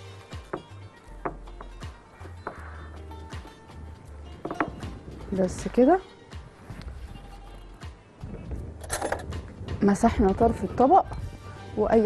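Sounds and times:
background music with low bass line: 0.0 - 12.0
short knocks: 4.4 - 5.0.

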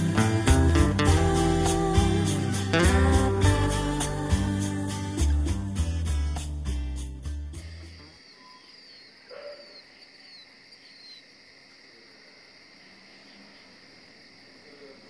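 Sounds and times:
crickets chirring: 3.8 - 15.0.

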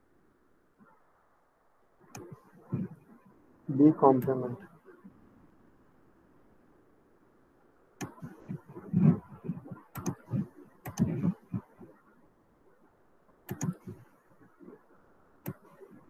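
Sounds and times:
computer mouse clicking: 2.1 - 2.9, 8.0 - 11.9, 13.5 - 14.0, 15.4 - 15.8.

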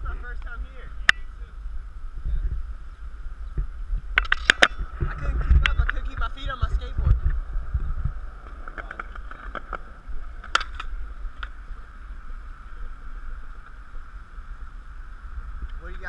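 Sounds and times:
steady hum: 0.0 - 16.0
wind rumble on microphone: 0.0 - 16.0
skateboard clacks on concrete: 8.4 - 11.6.

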